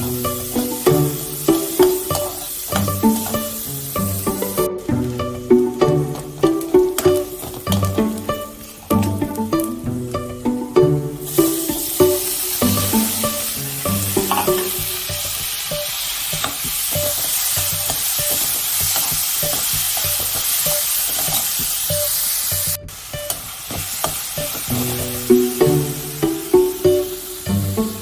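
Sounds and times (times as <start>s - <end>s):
vegetables sizzling in a pan: 0.0s - 28.0s
metal spatula scraping a pan: 12.8s - 14.9s.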